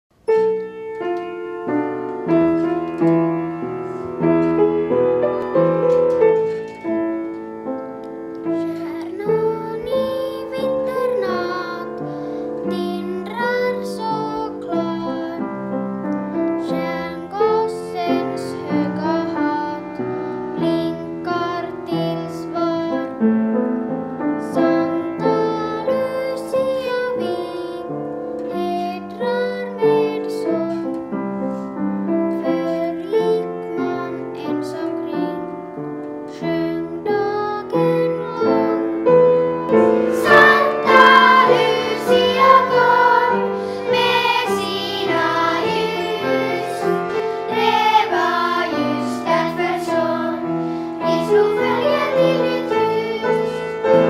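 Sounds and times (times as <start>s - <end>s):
piano accompaniment: 0.1s - 54.0s
children singing: 37.0s - 54.0s.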